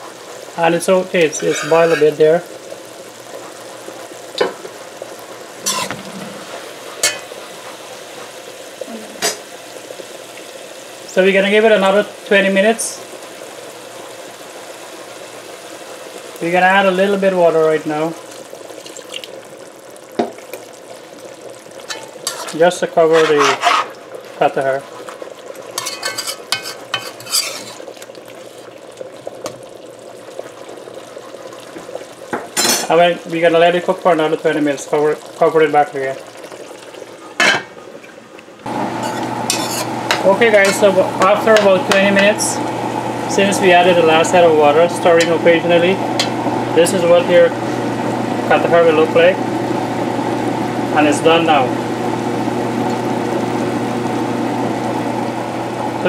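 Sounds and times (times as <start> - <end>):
curry bubbling and sizzling: 0.0 - 56.0
metal spoon scraping pot: 1.4 - 2.2, 5.6 - 7.3, 21.9 - 24.0, 25.8 - 27.9, 39.0 - 40.9.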